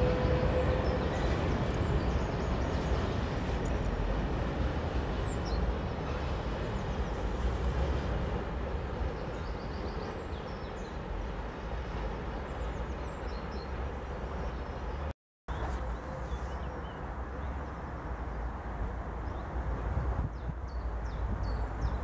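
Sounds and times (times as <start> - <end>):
freight train rolling past: 0.0 - 14.6.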